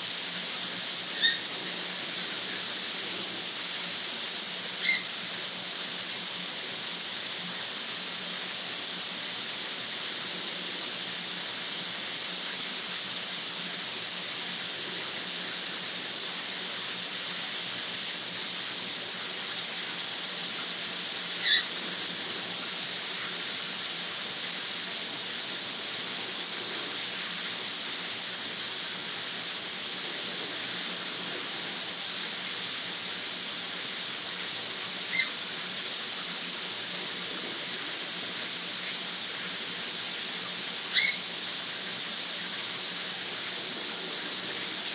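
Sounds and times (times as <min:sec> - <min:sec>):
shower spray hissing: 0:00.0 - 0:44.9
bird chirp: 0:41.0 - 0:41.2.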